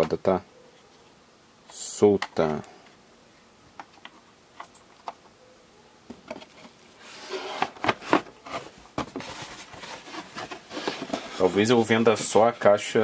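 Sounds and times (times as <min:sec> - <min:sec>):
cardboard box rustling: 0:06.4 - 0:12.6.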